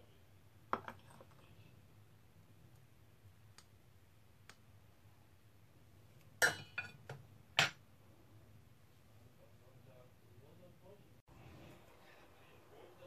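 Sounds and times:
metal spoon clinking on dishes: 6.4 - 7.8.

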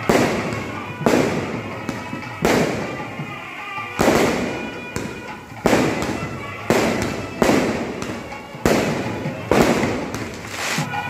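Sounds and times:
fireworks booming: 0.0 - 11.0.

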